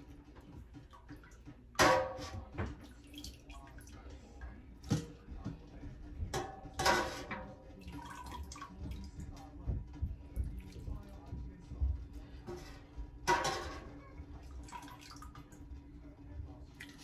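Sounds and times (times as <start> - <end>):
broth splashing and dripping: 0.0 - 5.0, 7.6 - 9.4, 14.4 - 15.8
metal spoon clanking against pot: 1.8 - 2.6, 6.3 - 7.6, 12.5 - 14.0.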